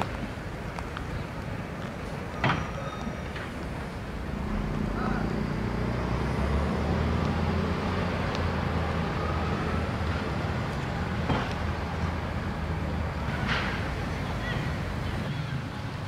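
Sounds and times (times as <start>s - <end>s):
traffic noise: 0.0s - 16.0s
low engine hum: 3.0s - 15.3s.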